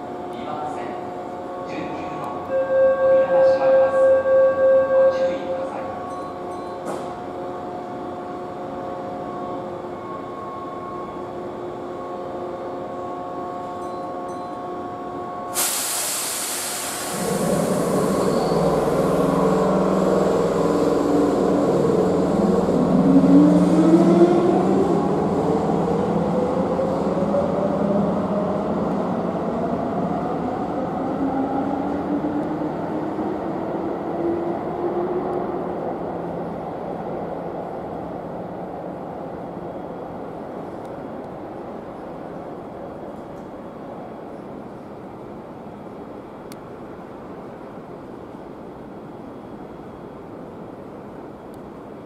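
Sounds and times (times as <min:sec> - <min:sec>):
electric train humming: 0:00.0 - 0:52.0
loud hiss of air: 0:15.5 - 0:19.2.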